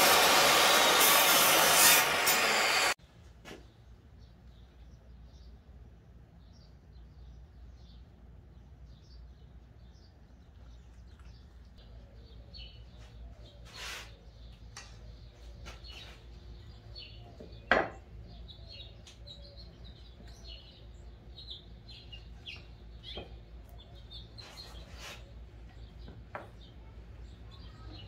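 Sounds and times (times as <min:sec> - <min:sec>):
small birds chirping: 0:03.6 - 0:28.0.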